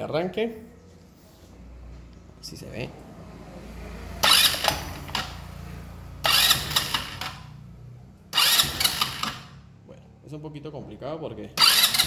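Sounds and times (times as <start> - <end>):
scooter engine cranking: 4.2 - 9.8, 11.5 - 12.0.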